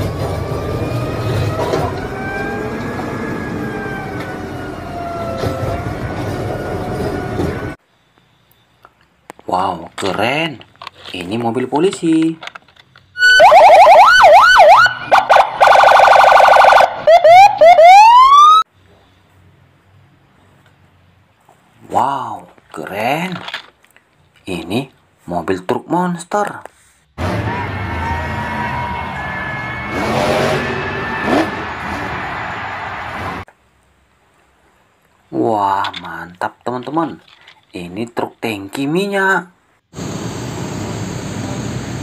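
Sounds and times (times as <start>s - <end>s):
police car electronic siren: 0.0s - 7.8s, 13.2s - 18.7s, 27.3s - 32.6s
truck engine revving hard: 27.2s - 33.4s.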